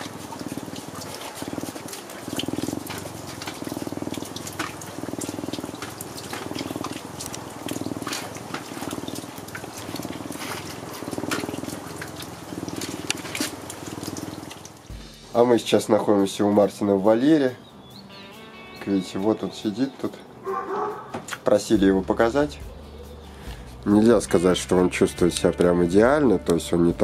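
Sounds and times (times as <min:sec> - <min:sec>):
lynx purring: 0:00.0 - 0:15.3.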